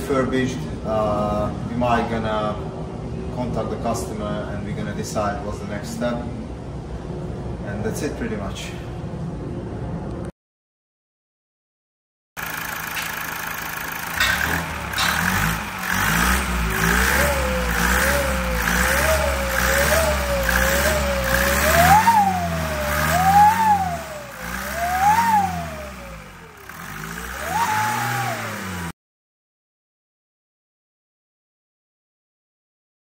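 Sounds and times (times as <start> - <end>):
car engine idling and revving: 12.4 - 29.0
turbo hooting whistle: 19.9 - 26.3, 27.4 - 28.5.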